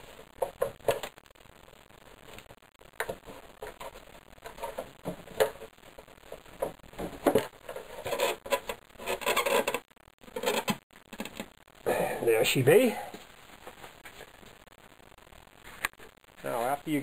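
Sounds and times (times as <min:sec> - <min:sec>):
rubbing and clatter: 0:03.0 - 0:11.6.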